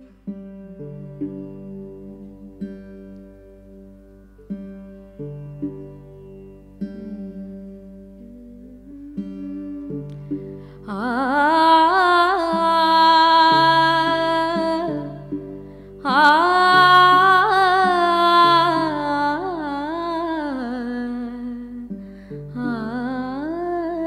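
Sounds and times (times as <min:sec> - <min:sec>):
tanpura drone: 0:00.3 - 0:24.0
woman singing wordlessly: 0:07.0 - 0:10.2, 0:10.8 - 0:15.3, 0:16.0 - 0:21.9, 0:22.5 - 0:24.0.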